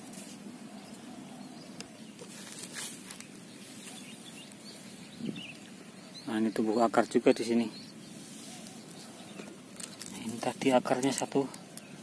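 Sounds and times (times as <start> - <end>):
faint outdoor ambience: 0.0 - 12.0
plant stems rustling and clicking: 1.8 - 4.7, 8.4 - 11.9.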